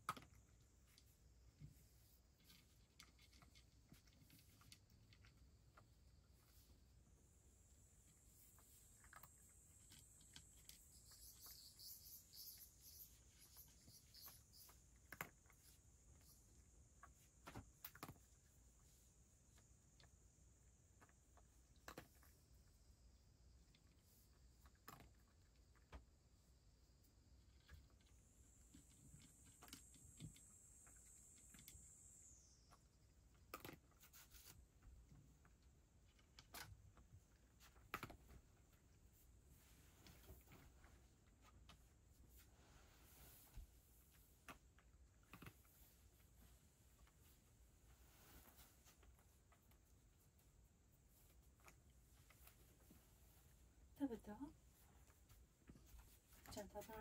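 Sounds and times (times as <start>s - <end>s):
faint high-pitched whine: 0.0s - 57.0s
cat eating crunching: 33.3s - 34.1s, 44.7s - 45.8s.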